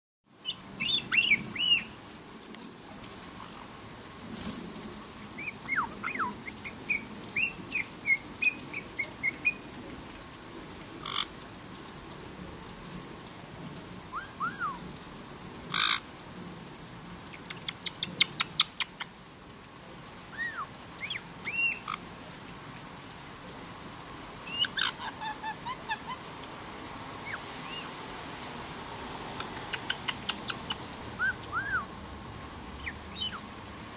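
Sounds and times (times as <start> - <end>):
parrot squawks: 11.0 - 11.3, 15.7 - 16.0, 24.5 - 26.2
parrot chirps and whistles: 14.2 - 14.8, 31.2 - 31.9.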